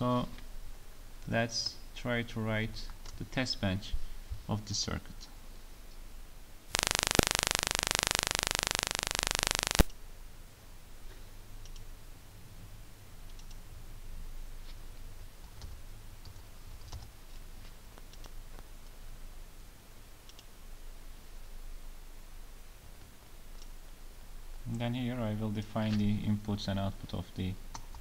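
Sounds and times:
loud static hiss: 0.0s - 28.0s
computer mouse clicks: 13.3s - 13.6s, 20.3s - 20.5s.

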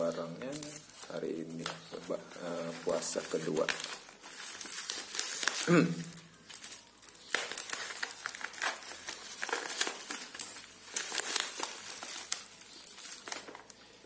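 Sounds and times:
scissors cutting plastic: 0.0s - 13.9s
plastic wrap crinkling: 0.0s - 14.0s.

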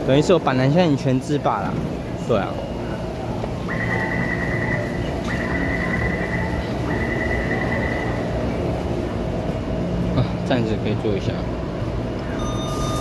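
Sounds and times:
train humming at platform: 0.0s - 13.0s
door-closing warning beeps: 12.3s - 13.0s.

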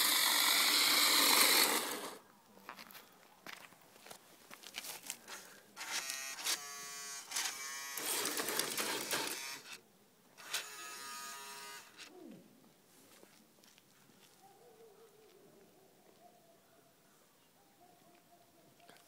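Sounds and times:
small electric motor whining: 0.0s - 2.2s, 5.8s - 9.8s, 10.4s - 12.1s.

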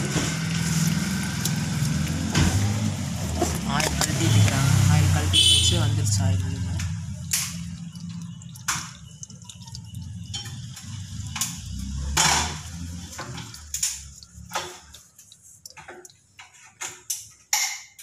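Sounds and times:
oil dripping into a pan: 0.0s - 18.0s
oil filter clicks and knocks: 5.6s - 18.0s.

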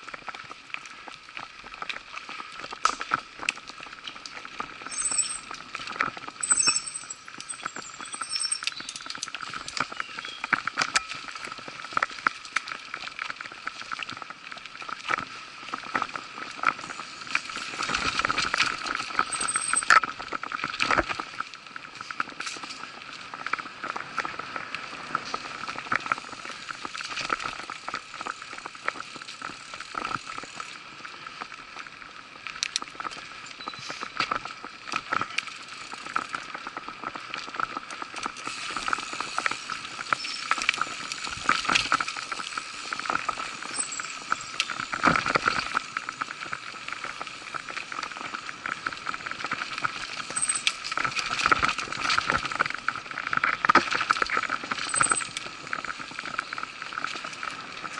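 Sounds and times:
bike tyres on dirt: 0.0s - 57.9s
bike rattling and knocking: 17.5s - 20.9s.

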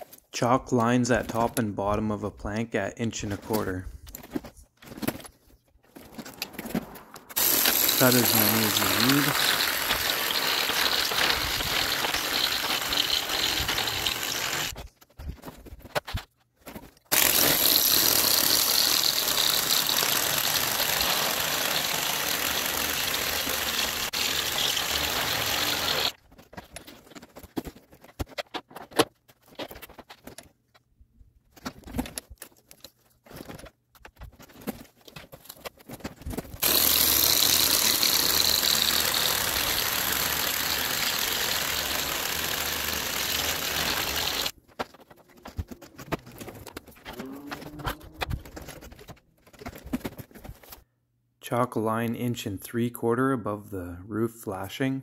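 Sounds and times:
knocks and handling clatter: 3.2s - 8.2s, 10.9s - 17.1s, 26.2s - 36.6s, 44.5s - 50.9s
power tool cutting plank: 7.3s - 14.8s, 17.1s - 26.2s, 36.6s - 44.5s.

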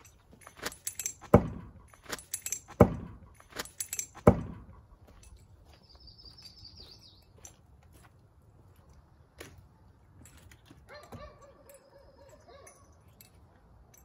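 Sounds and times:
light clinks and rattles: 0.0s - 14.0s
heavy thuds with deep ring: 0.8s - 4.8s.

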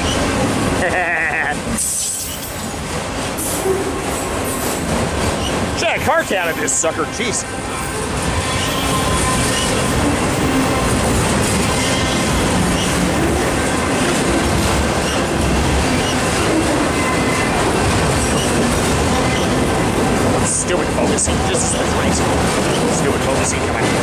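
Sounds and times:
train wheels rumbling on rails: 0.0s - 24.0s
wheels clacking over rail joints: 1.6s - 24.0s
faint wheel squeal: 8.4s - 9.9s.

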